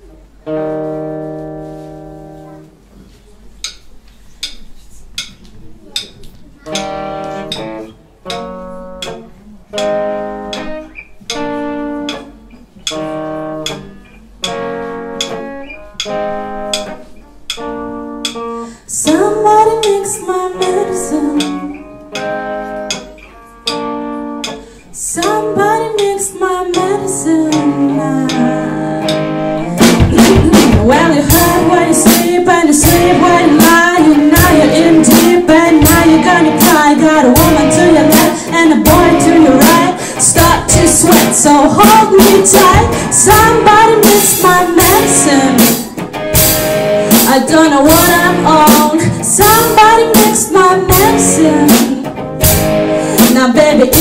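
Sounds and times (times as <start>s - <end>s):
guitar chords plucked: 0.3s - 2.7s, 6.6s - 54.0s
woman singing: 18.9s - 21.8s, 25.0s - 46.0s, 47.1s - 52.2s, 53.1s - 54.0s
full rock band with drums: 28.3s - 54.0s.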